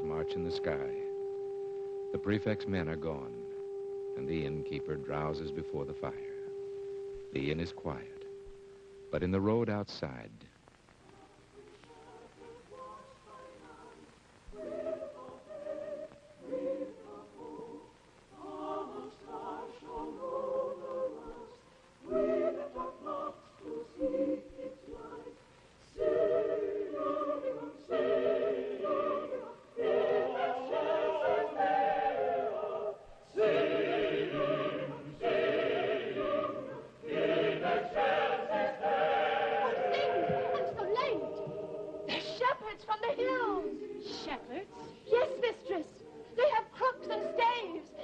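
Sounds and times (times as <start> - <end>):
choir singing: 0.0 - 1.2, 11.6 - 48.0.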